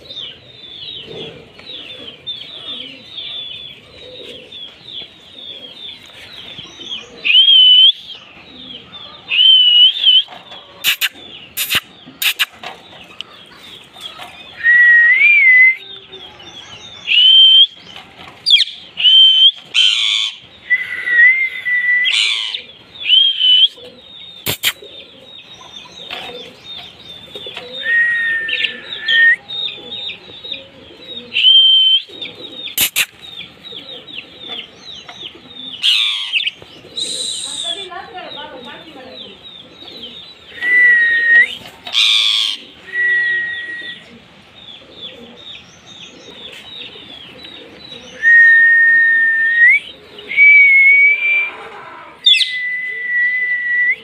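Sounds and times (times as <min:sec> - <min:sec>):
chatter of small birds: 0:00.0 - 0:53.0
whistled bird calls: 0:07.2 - 0:08.2, 0:09.4 - 0:12.7, 0:20.6 - 0:25.0, 0:27.6 - 0:29.7, 0:31.3 - 0:33.5, 0:35.8 - 0:37.9, 0:40.5 - 0:44.2, 0:48.1 - 0:51.6, 0:52.2 - 0:54.0
parakeets squawking: 0:10.8 - 0:12.6, 0:24.4 - 0:25.0, 0:32.3 - 0:33.5, 0:35.8 - 0:38.3, 0:41.8 - 0:42.8
sharp clicks: 0:24.5 - 0:24.8, 0:32.8 - 0:33.2.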